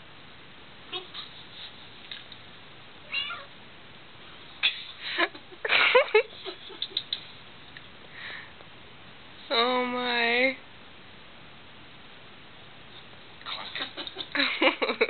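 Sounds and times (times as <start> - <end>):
cat meowing: 3.1 - 3.5.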